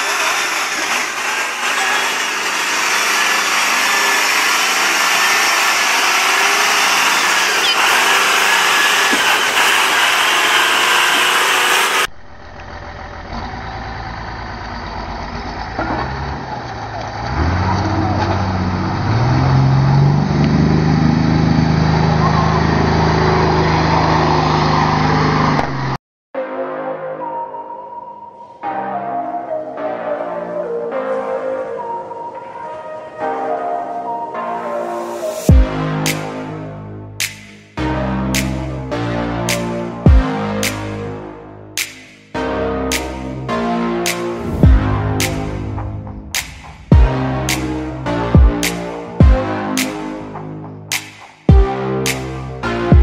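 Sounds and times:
dump truck engine running: 0.0 - 25.6
diesel engine revving: 0.0 - 26.0, 35.5 - 50.9.

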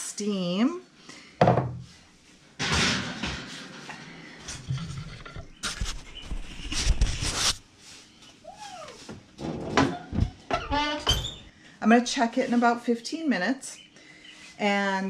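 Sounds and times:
oven door and rack rattling: 2.6 - 3.9, 9.4 - 11.5
rising and falling squeak: 10.5 - 11.5.

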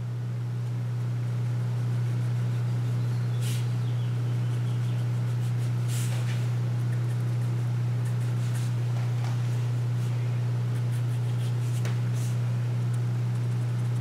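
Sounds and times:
low hum: 0.0 - 14.0
marker scratching on paper: 4.4 - 8.8, 9.4 - 12.4.

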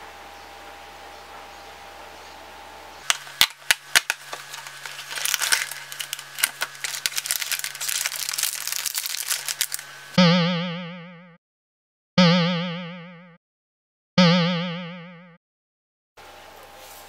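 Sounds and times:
plastic packets crinkling: 3.0 - 10.2
cardboard box tearing: 3.1 - 9.8.

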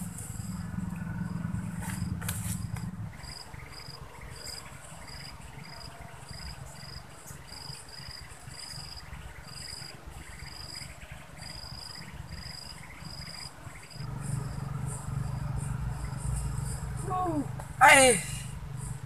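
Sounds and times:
low rumble: 0.0 - 3.3, 14.0 - 17.8
insects chirping: 0.0 - 19.0
faint pulsing buzz: 12.9 - 17.8.

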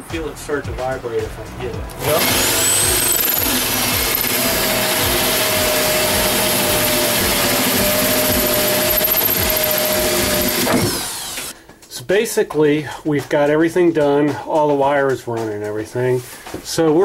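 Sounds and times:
electric drill boring: 2.0 - 11.5.

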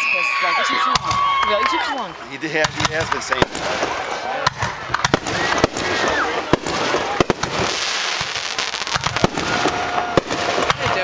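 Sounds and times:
fireworks bangs: 0.6 - 11.0
fireworks crackling hiss: 2.4 - 11.0.

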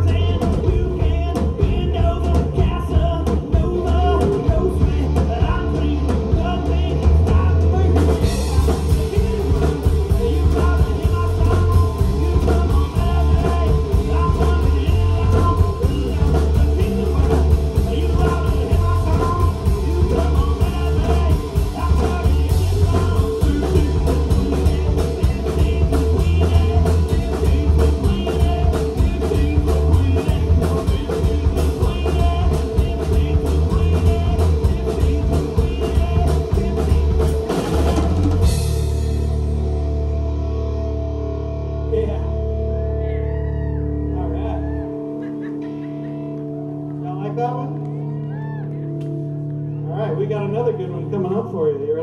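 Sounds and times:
person singing: 0.0 - 38.7
drum kit: 0.0 - 42.3
electric guitars: 0.0 - 52.0.

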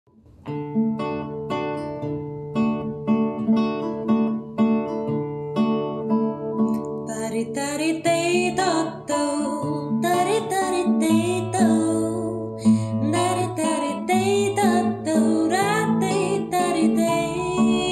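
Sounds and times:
fingerpicked classical guitar: 0.1 - 17.9
woman singing: 7.1 - 17.9.

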